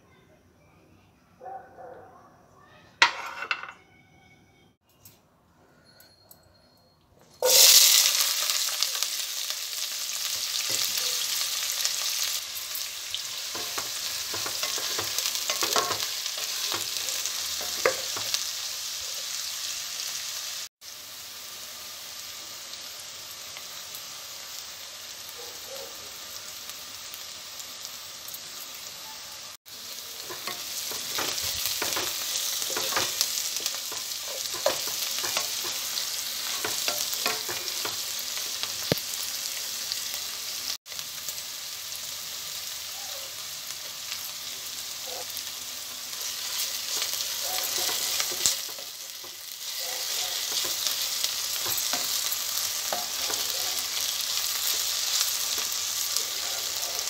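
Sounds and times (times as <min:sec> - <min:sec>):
onions sizzling in hot oil: 0:07.4 - 0:57.0
wooden spatula scraping and tapping: 0:13.5 - 0:16.9, 0:30.3 - 0:33.3, 0:33.9 - 0:35.8.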